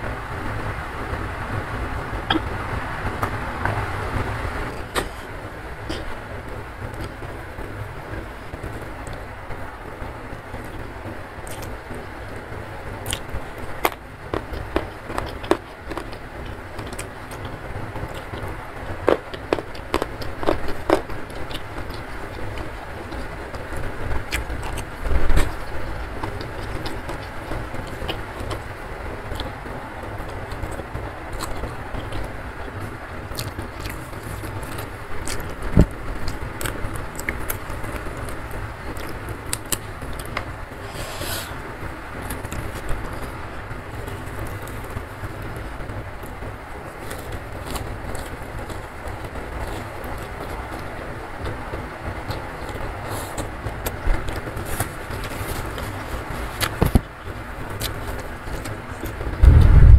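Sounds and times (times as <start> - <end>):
low background hum: 0.0 - 59.9
person chewing and crunching: 11.4 - 11.7, 13.0 - 17.5, 18.2 - 23.3, 24.3 - 28.6, 31.4 - 41.6, 47.0 - 50.9.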